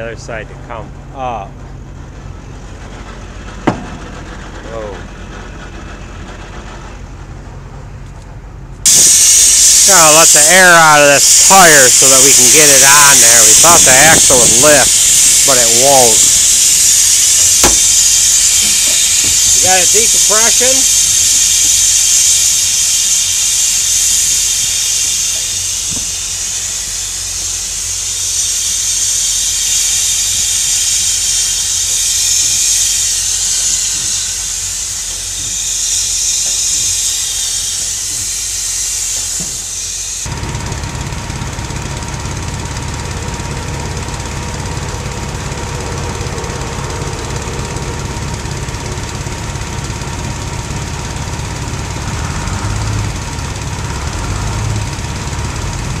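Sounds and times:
diesel engine idling: 0:00.0 - 0:56.0
air hissing out of tire: 0:08.9 - 0:40.3, 0:43.1 - 0:55.8.

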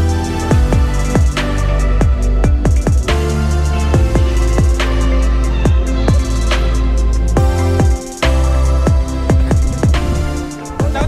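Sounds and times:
sustained bass: 0:00.0 - 0:11.0
deep kick drums: 0:00.5 - 0:01.4, 0:02.0 - 0:03.2, 0:04.0 - 0:05.0, 0:05.7 - 0:06.4, 0:07.4 - 0:11.0.

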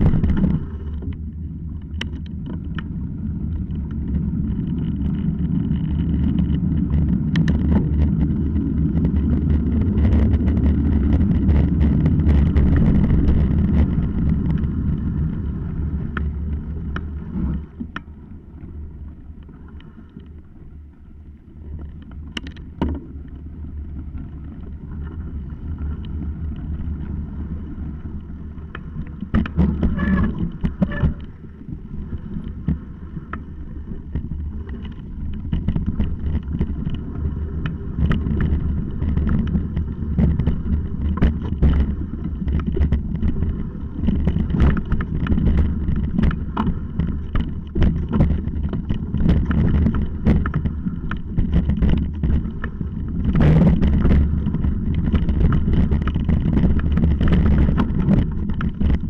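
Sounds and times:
wind rushing on microphone: 0:00.0 - 0:18.1, 0:23.7 - 0:59.0
bike rattling and knocking: 0:00.0 - 0:18.2, 0:21.7 - 0:59.0
bike tyres rumbling on gravel: 0:00.0 - 0:59.0.

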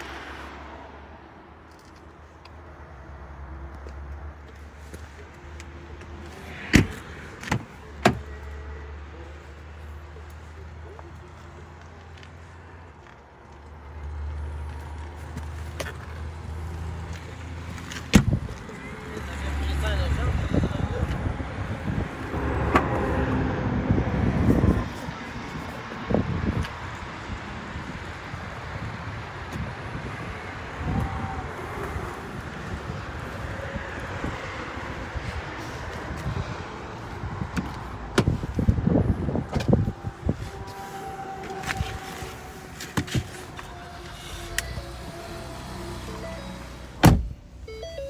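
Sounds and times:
wind buffeting microphone: 0:20.3 - 0:40.7.

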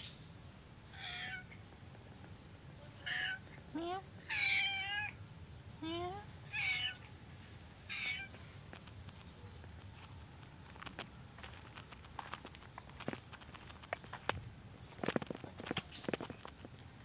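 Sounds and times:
cat meowing: 0:00.9 - 0:01.6, 0:03.0 - 0:03.5, 0:04.2 - 0:05.2, 0:06.5 - 0:07.1, 0:07.9 - 0:08.4.

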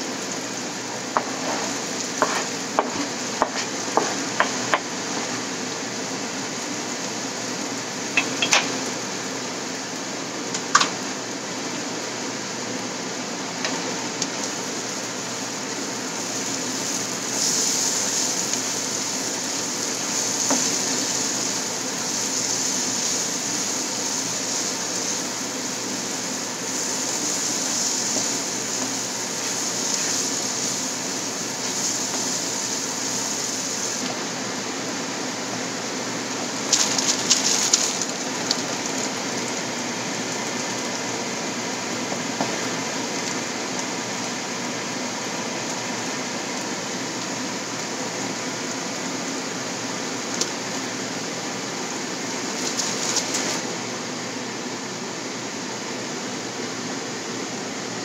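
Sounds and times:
food sizzling in oil: 0:00.0 - 0:58.0
spatula scraping pan: 0:01.2 - 0:05.3.

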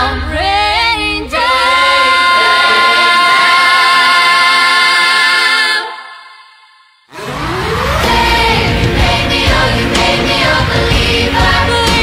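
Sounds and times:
children's choir singing: 0:00.0 - 0:12.0.

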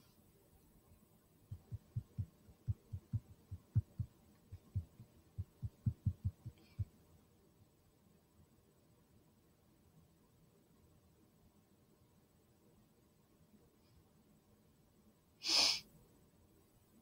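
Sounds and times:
soft low thumps: 0:01.5 - 0:06.9.

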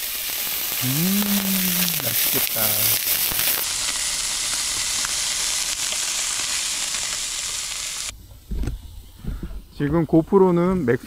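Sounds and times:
small crackles: 0:00.0 - 0:08.1
steaks sizzling on grill pan: 0:00.0 - 0:08.1.

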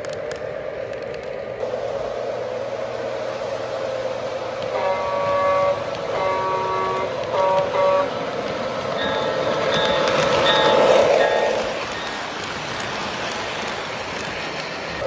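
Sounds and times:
model train running: 0:00.0 - 0:15.0
model train horn: 0:04.6 - 0:08.2.

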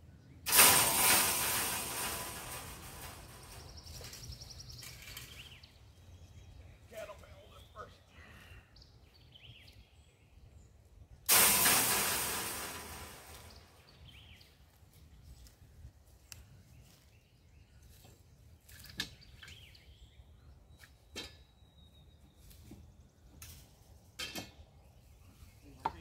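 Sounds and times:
metal clang ringing: 0:00.5 - 0:04.3, 0:11.3 - 0:13.6
metallic clinks of wire panels: 0:00.5 - 0:05.6, 0:24.2 - 0:24.6.

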